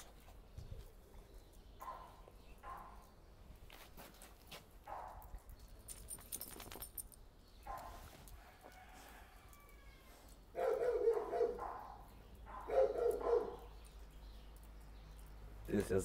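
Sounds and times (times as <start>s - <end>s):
dogs barking: 1.8s - 3.1s, 4.8s - 5.3s, 7.6s - 8.1s, 10.5s - 14.0s
soft rustling and handling noise: 3.6s - 10.5s.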